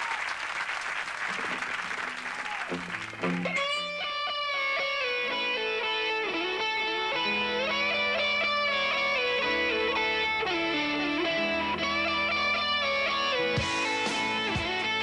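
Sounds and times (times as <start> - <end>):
audience applause: 0.0 - 3.8
electric guitar sliding notes: 2.7 - 15.0
rock band playing: 2.7 - 15.0.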